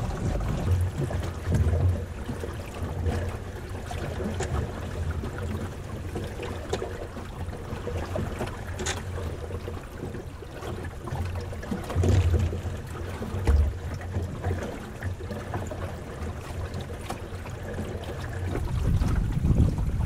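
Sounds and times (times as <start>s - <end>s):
low rumble: 0.0s - 2.0s
water gurgling along a hull: 0.0s - 20.0s.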